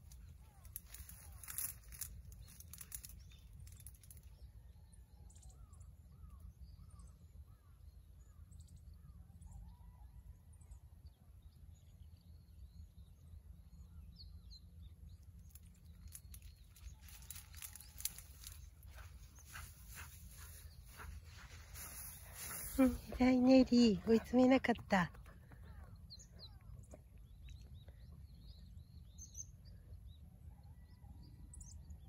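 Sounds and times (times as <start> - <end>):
rustles and clicks: 0.0 - 4.3, 15.4 - 25.4
faint bird chirps: 0.0 - 32.0.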